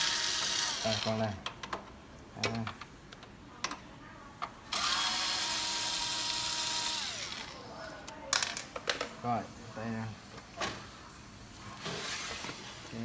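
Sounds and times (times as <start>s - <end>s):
drill motor whining: 0.0s - 1.1s, 4.7s - 7.6s.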